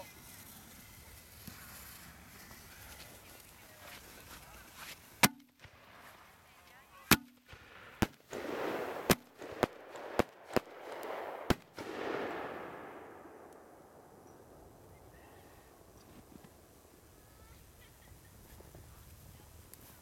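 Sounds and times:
firework bangs: 5.2s - 15.3s
firework hissing: 7.5s - 12.3s.

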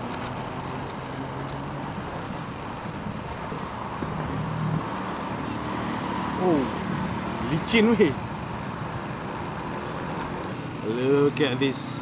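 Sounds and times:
road traffic passing: 0.0s - 12.0s
light clicks: 0.1s - 1.6s.

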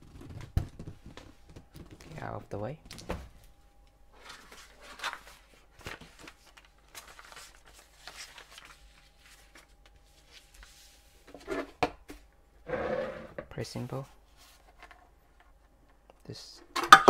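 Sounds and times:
paper rustling: 4.2s - 11.3s.

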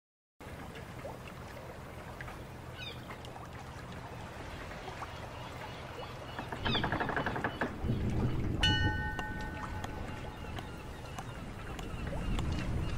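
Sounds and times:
trickling water: 0.4s - 12.9s
creaking wooden clatter: 6.4s - 10.7s
metallic ring: 8.6s - 9.9s.

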